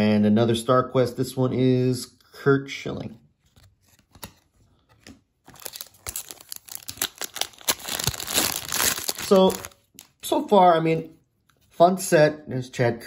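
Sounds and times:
wrapper crinkling and tearing: 5.4 - 10.3.

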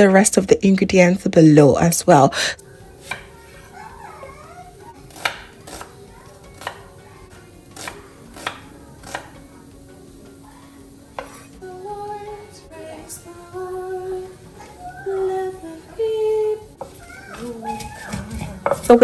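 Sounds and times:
soft background music: 0.0 - 19.0
knife chopping on cutting board: 3.0 - 3.4, 5.1 - 5.9, 6.6 - 6.9, 7.8 - 9.4, 11.2 - 11.5
person singing: 11.6 - 18.8.

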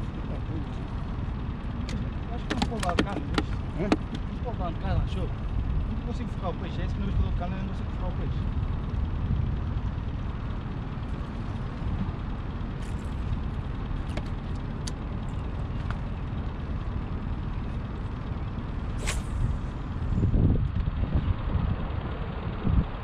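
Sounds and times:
steady low rumble: 0.0 - 23.0
short sharp swish: 18.9 - 19.7.

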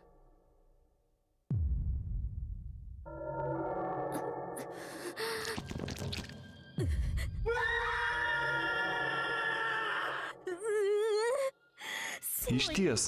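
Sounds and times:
sudden low boom: 1.5 - 3.1
woman screaming: 7.5 - 11.2.

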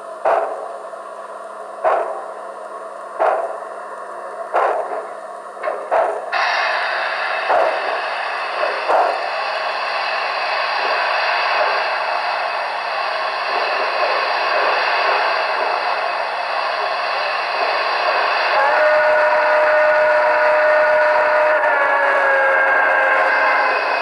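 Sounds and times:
steam puffs: 3.2 - 24.0
steam hiss from speaker: 4.6 - 24.0
steam whistle: 17.7 - 24.0.

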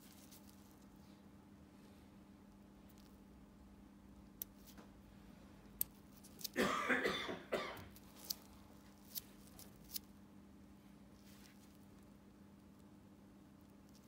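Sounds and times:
steady low hum: 0.0 - 14.0
person coughing: 6.6 - 7.9.

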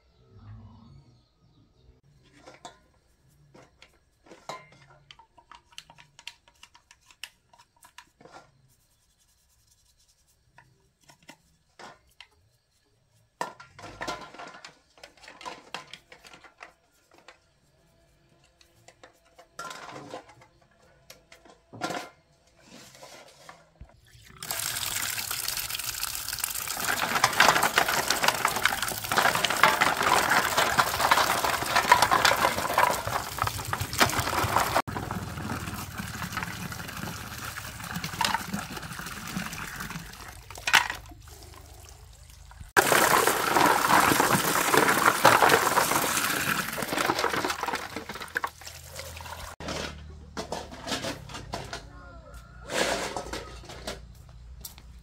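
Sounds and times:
scrubbing plastic parts in water: 5.2 - 12.3, 24.3 - 49.9
water pouring into steel basin: 24.3 - 29.9, 34.7 - 44.6.

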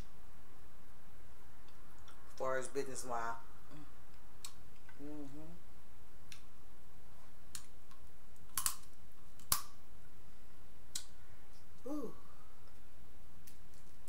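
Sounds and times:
steady low background hum: 0.0 - 14.0
person humming: 4.9 - 5.6, 11.8 - 12.3.

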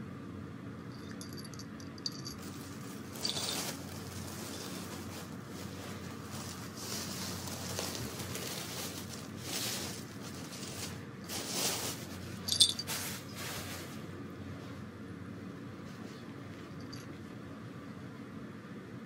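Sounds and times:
collar bell jingle: 0.8 - 5.0, 12.4 - 13.1, 16.7 - 17.2
cats rustling: 2.0 - 14.8.

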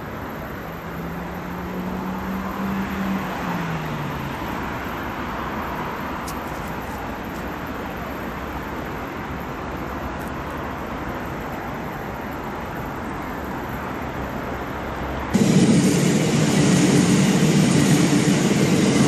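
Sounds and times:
city road traffic: 0.0 - 19.0
passing vehicle hum: 0.6 - 6.2, 14.0 - 19.0.

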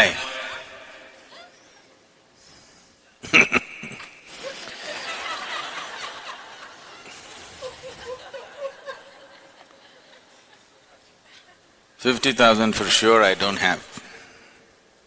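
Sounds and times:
audience laughter: 3.4 - 11.7.

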